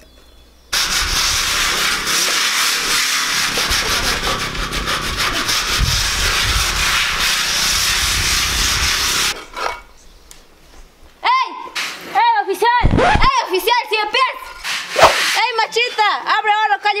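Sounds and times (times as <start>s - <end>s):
trowel scraping wet mortar: 0.8s - 9.9s.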